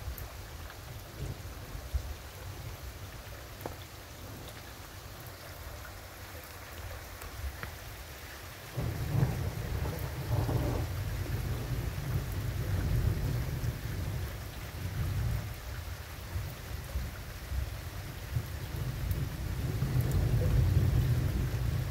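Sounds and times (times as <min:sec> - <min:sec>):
rain hissing: 0:00.0 - 0:21.9
low rumble of thunder: 0:01.0 - 0:02.8, 0:08.7 - 0:21.9.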